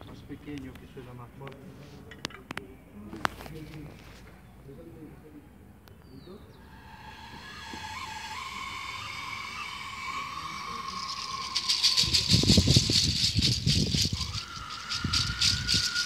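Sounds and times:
steady high tone: 0:06.6 - 0:16.0
hoof rattle shaken hard: 0:09.2 - 0:16.0.

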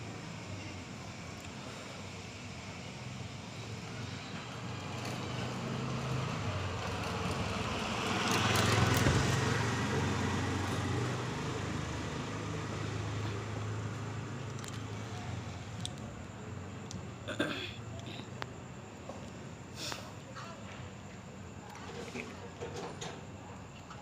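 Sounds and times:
vehicle passing by: 0:03.0 - 0:15.8.

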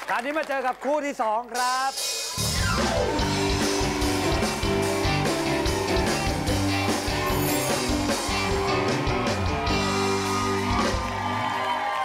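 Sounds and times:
band music: 0:01.5 - 0:11.7
drum beat: 0:01.6 - 0:11.2
bass notes: 0:02.6 - 0:11.2.

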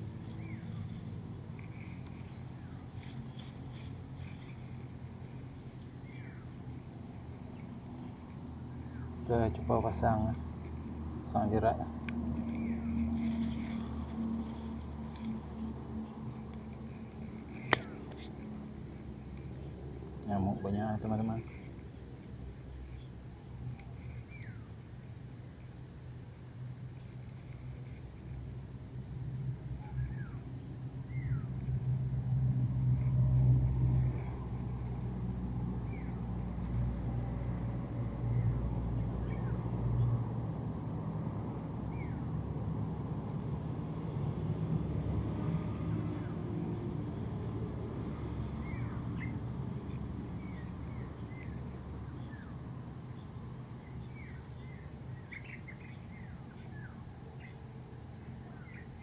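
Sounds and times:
hands rustling leaves and twigs: 0:00.0 - 0:24.6
steady low hum: 0:00.0 - 0:59.0
bird chirps: 0:00.2 - 0:04.8, 0:48.6 - 0:52.5.

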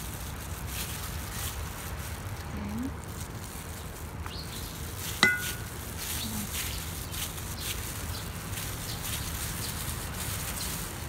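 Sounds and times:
spoon knocking metal bowl: 0:05.2 - 0:05.6
bowl ringing: 0:05.2 - 0:05.7.

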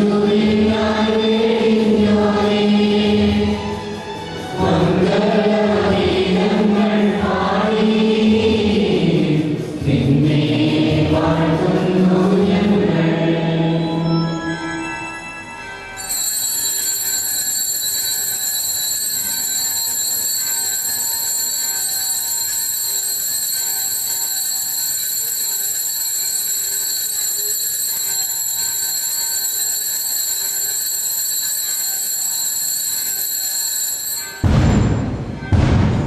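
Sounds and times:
electric bell ringing: 0:13.9 - 0:34.8.

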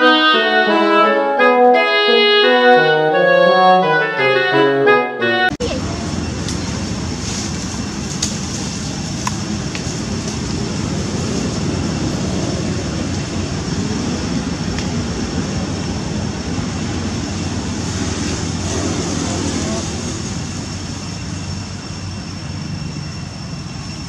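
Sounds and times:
low rumbling background noise: 0:05.6 - 0:24.0.

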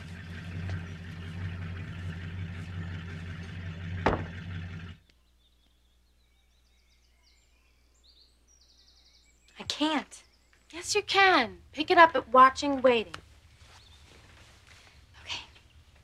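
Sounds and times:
sharp knock: 0:04.0 - 0:04.4.

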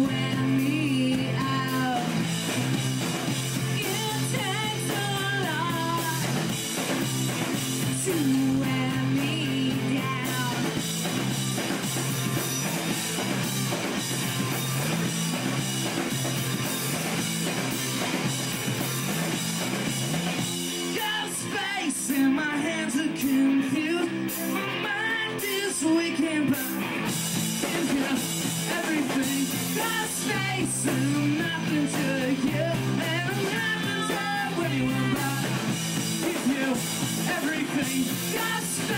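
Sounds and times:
person singing: 0:00.0 - 0:02.3, 0:03.6 - 0:06.6, 0:07.7 - 0:11.2, 0:20.8 - 0:38.9
bass guitar: 0:00.0 - 0:38.9
drum kit: 0:00.0 - 0:38.9
electric guitars: 0:00.0 - 0:38.9.

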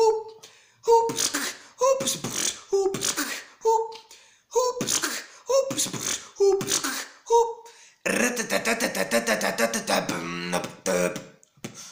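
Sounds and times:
person beatboxing: 0:00.0 - 0:07.5, 0:08.1 - 0:11.9.

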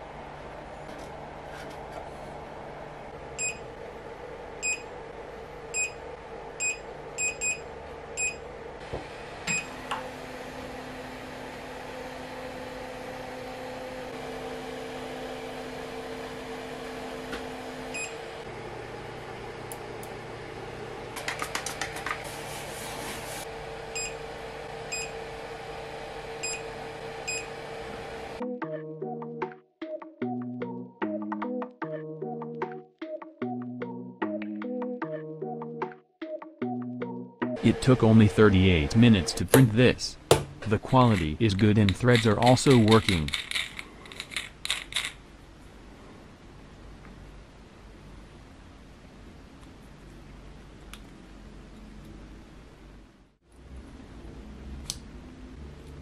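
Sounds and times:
three d printer humming: 0:00.0 - 0:21.3, 0:37.6 - 0:43.4
music: 0:28.4 - 0:38.4.

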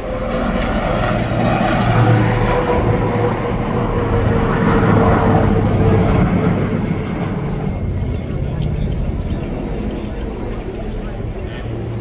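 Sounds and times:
aircraft engine flying over: 0:00.0 - 0:12.0.

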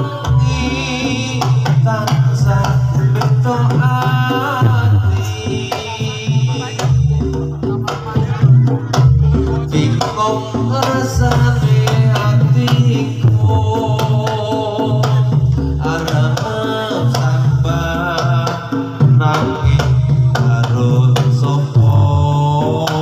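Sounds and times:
drums beating: 0:00.0 - 0:23.0
pitched percussion melody: 0:00.0 - 0:23.0.

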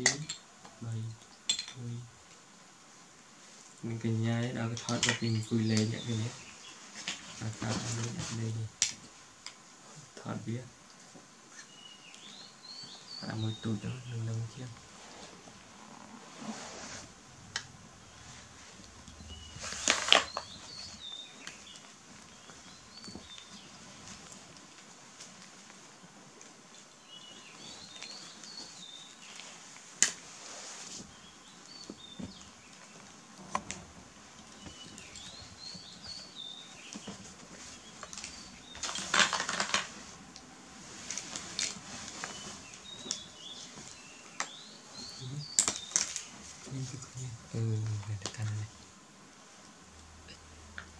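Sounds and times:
plastic toys clattering: 0:01.4 - 0:01.9, 0:38.2 - 0:40.0
faint high chirps: 0:17.4 - 0:23.8.

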